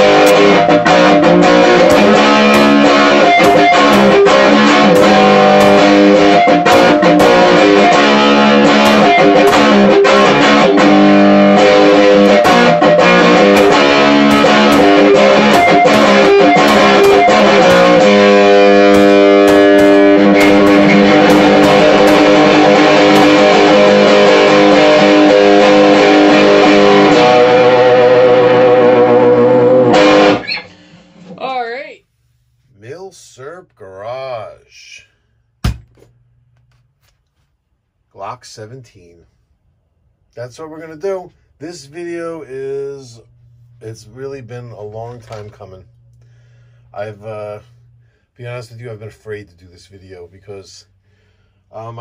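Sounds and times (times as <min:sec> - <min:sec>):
guitar-led background music: 0:00.0 - 0:31.7, 0:40.9 - 0:49.1.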